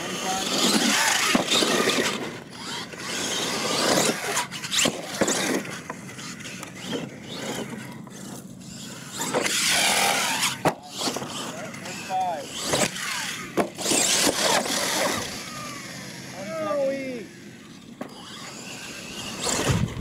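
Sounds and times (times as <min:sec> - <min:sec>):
toy truck motor whining: 0:00.0 - 0:20.0
sharp landing thump: 0:19.6 - 0:20.0.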